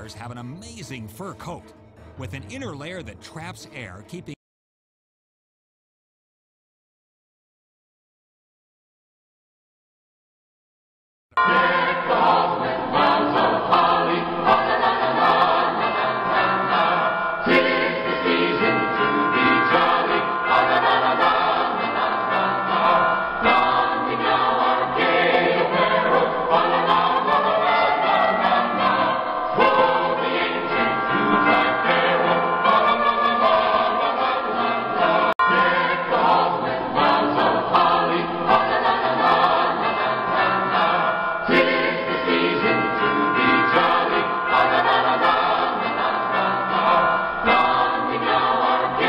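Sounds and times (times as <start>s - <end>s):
choir singing: 11.4s - 49.0s.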